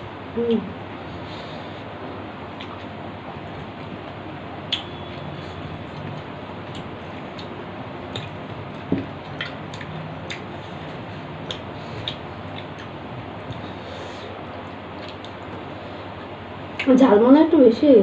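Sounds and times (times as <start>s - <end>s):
chewing: 3.6s - 16.9s.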